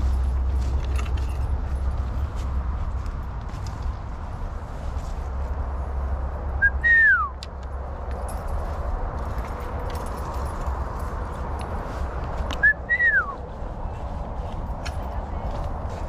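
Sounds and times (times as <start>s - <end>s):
footsteps through leaves and brush: 0.0s - 6.4s, 8.0s - 16.0s
loud two-part whistle: 6.6s - 7.4s.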